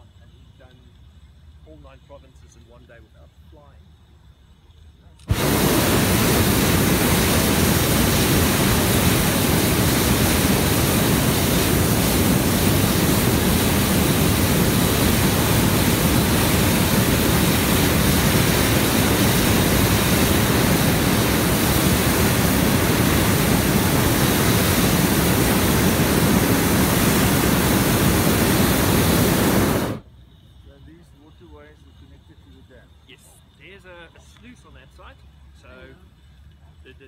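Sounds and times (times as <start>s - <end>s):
propane burner roaring: 5.2s - 30.1s.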